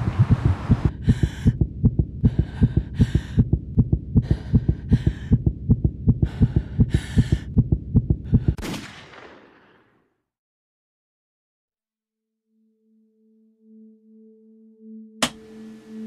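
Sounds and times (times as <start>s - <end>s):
fast heartbeat thumps: 0.0s - 8.6s.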